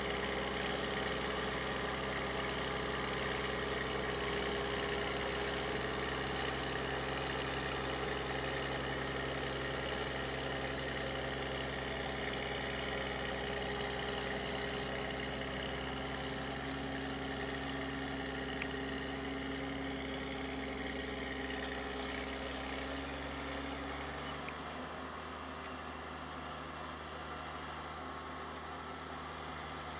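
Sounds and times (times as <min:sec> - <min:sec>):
tractor engine rumbling: 0:10.7 - 0:29.9.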